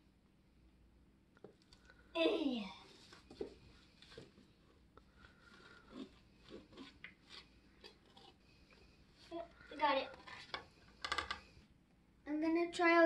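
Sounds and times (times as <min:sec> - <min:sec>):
knife sawing through cake: 0:05.6 - 0:08.4.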